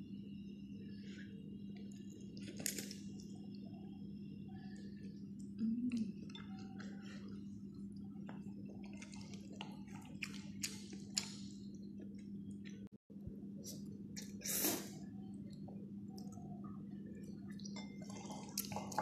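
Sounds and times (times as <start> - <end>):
steady low hum: 0.0 - 19.0
person chewing and slurping noodles: 6.2 - 12.3.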